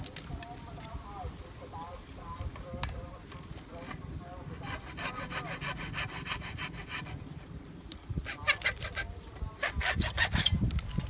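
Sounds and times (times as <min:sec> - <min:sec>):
hacksaw cutting plastic pipe: 0:04.6 - 0:07.2, 0:08.2 - 0:10.7.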